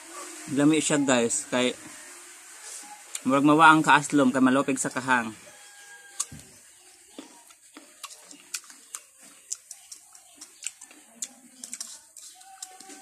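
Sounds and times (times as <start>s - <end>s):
chewing crisp mango: 7.0s - 13.0s.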